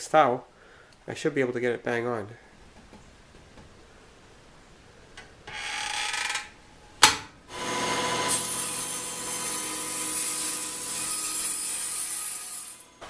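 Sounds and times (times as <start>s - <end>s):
table saw cutting wood: 7.5s - 13.0s.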